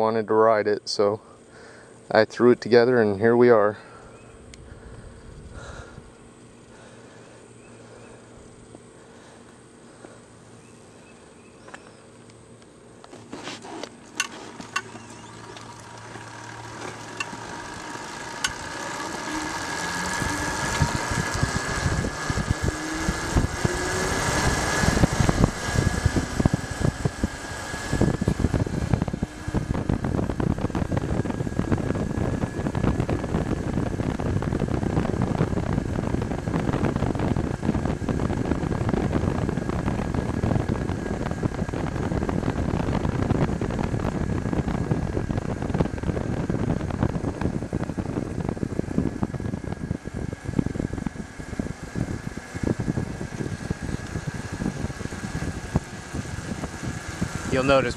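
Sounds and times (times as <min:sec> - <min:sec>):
electric motor whining: 0:13.8 - 0:57.9
wind buffeting microphone: 0:15.2 - 0:57.9.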